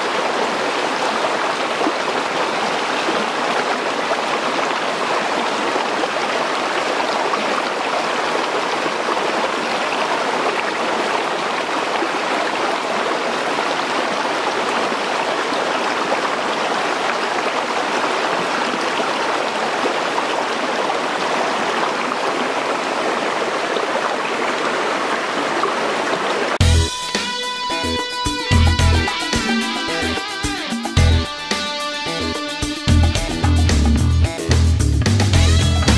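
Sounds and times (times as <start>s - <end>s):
stream running over rocks: 0.0s - 26.6s.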